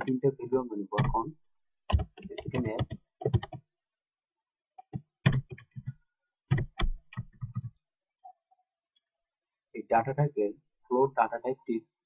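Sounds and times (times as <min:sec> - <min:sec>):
keyboard typing: 0:01.9 - 0:03.7, 0:04.8 - 0:07.8.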